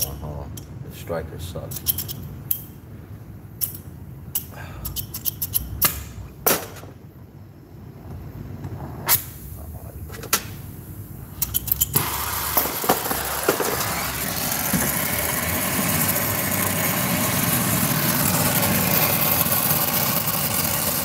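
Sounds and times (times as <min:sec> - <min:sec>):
torch flame hissing: 0:11.9 - 0:21.0.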